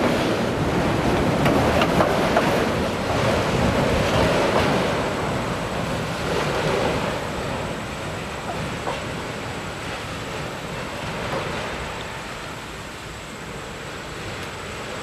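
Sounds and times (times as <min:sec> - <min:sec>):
freight train wheels rumbling: 0:00.0 - 0:15.0
wind buffeting microphone: 0:00.0 - 0:15.0
clicks over rail joints: 0:01.1 - 0:03.2.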